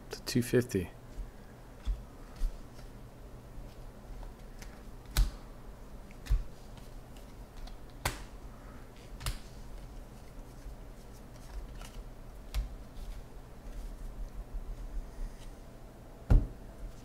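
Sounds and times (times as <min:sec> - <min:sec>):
dull thump: 0:16.3 - 0:16.6.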